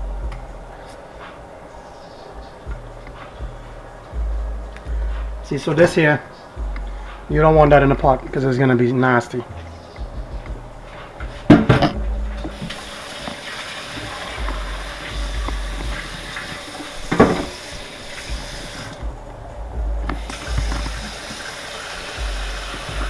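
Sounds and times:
rushing water: 12.5s - 19.1s, 20.2s - 23.0s.

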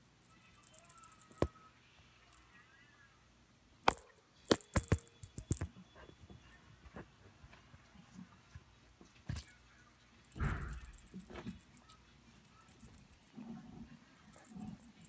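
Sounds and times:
light metallic jingling: 0.0s - 1.6s, 3.9s - 5.7s, 9.3s - 15.0s.

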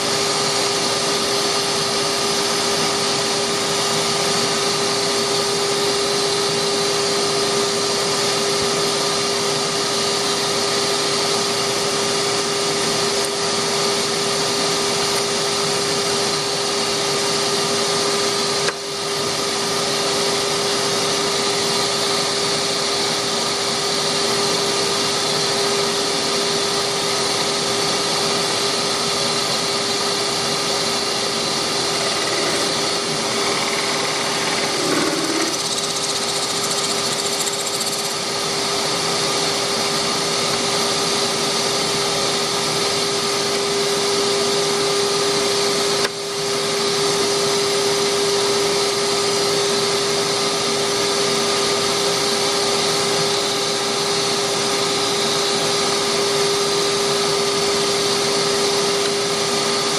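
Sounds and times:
workshop machinery whirring: 23.3s - 41.4s.

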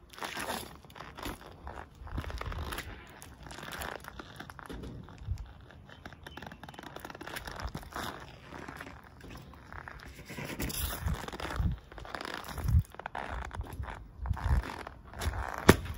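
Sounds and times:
rubber soles scraping concrete: 0.0s - 15.9s
sneakers squishing banana: 11.0s - 15.9s.

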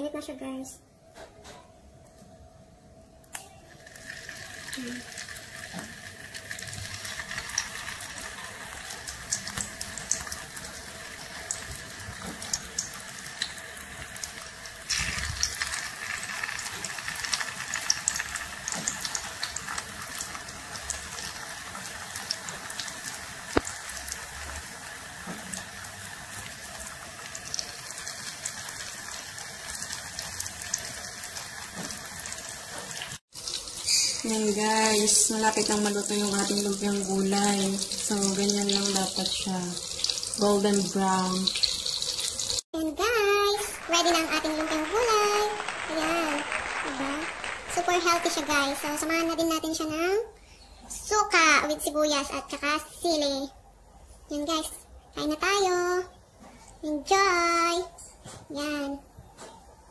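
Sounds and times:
food sizzling in hot oil: 3.6s - 50.1s.

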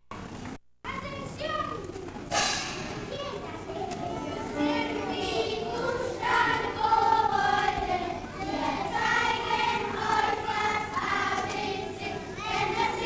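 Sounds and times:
children's choir singing: 3.6s - 13.0s.

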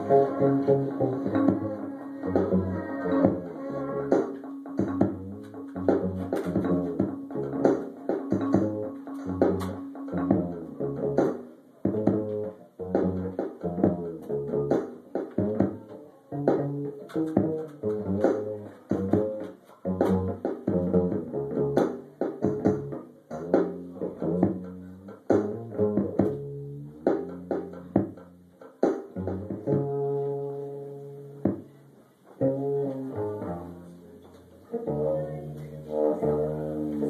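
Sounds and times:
cello playing: 0.0s - 22.0s, 32.4s - 37.0s
amplified electric instrument: 0.0s - 31.7s, 32.4s - 37.0s.

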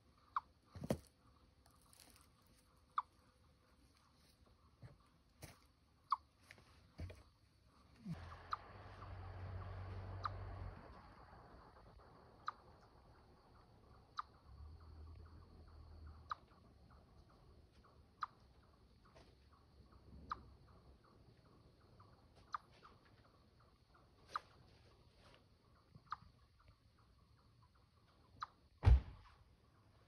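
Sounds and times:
chipmunk chip calls: 1.6s - 3.5s, 8.0s - 25.0s.

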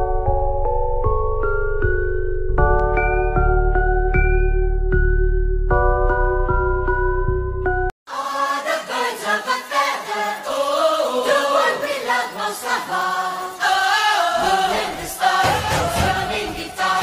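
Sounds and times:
choir singing over music: 8.1s - 17.0s.

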